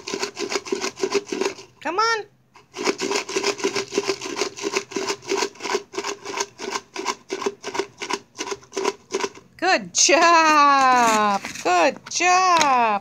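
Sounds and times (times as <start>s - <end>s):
chips rattling in shaken can: 0.0s - 1.8s, 2.6s - 9.5s.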